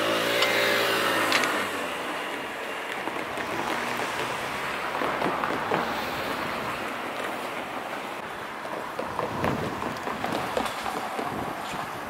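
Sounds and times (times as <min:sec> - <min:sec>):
rushing outdoor background noise: 0:00.0 - 0:12.0.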